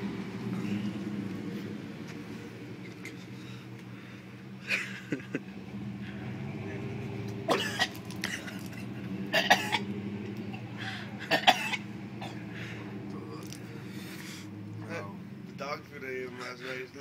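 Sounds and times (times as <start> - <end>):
man coughing and gagging: 7.5 - 9.9, 11.2 - 12.4.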